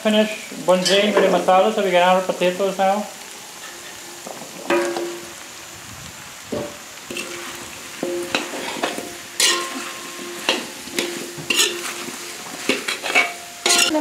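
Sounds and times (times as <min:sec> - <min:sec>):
curry sizzling in oil: 0:00.0 - 0:14.0
pot ringing: 0:04.7 - 0:05.4, 0:07.1 - 0:14.0
metal spoon scraping a pot: 0:07.1 - 0:14.0.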